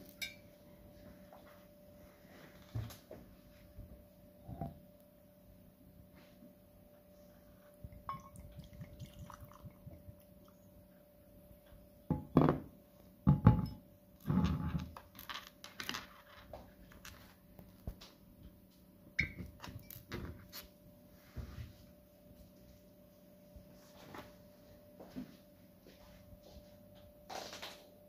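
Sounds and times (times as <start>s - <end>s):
faint steady hum: 0.0s - 28.0s
glass bottle thunking on table: 12.1s - 12.7s, 13.3s - 13.8s.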